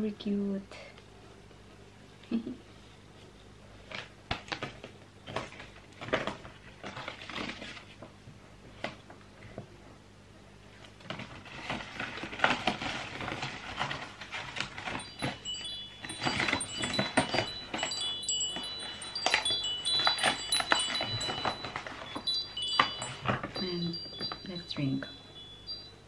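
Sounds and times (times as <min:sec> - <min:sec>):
paper tag rustling and crinkling: 0:03.8 - 0:09.6, 0:10.7 - 0:25.9
short high tinkling tones: 0:15.0 - 0:26.0.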